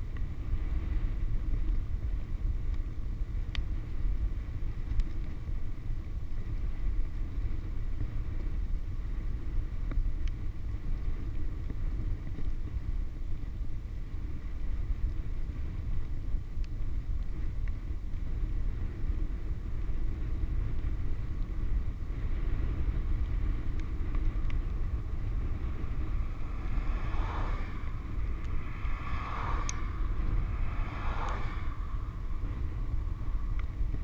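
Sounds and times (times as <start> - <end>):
bicycle tyres rolling on asphalt: 0.0 - 34.0
wind buffeting microphone: 0.0 - 34.0.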